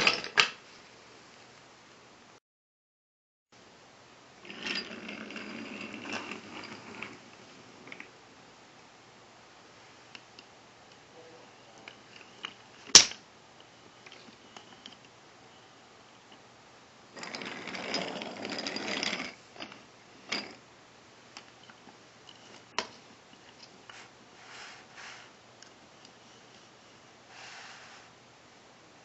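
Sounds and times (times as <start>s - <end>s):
wooden toy train rattling on track: 17.2s - 20.6s.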